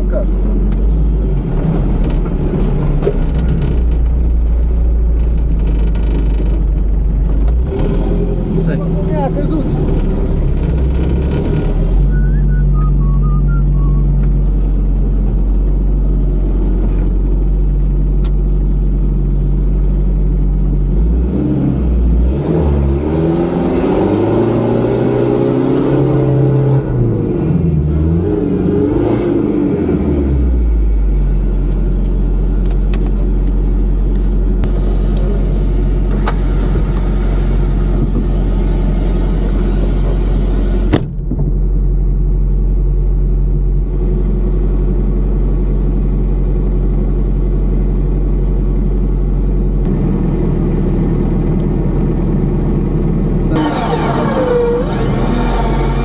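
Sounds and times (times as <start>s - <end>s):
truck engine revving: 0.0s - 15.2s, 21.0s - 30.8s, 53.2s - 56.0s
truck engine running steadily: 0.0s - 23.0s, 26.0s - 56.0s.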